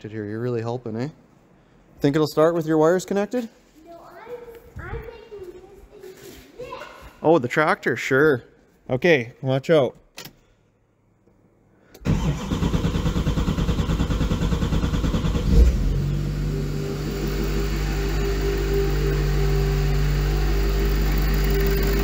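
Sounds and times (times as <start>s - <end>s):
diesel engine cranking on starter: 12.0s - 22.0s
diesel engine idling: 12.1s - 22.0s.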